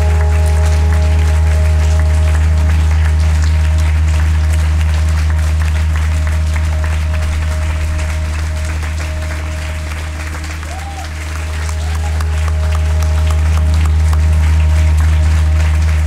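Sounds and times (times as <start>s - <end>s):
audience clapping: 0.0s - 16.0s
sustained low orchestral chord: 0.0s - 16.0s.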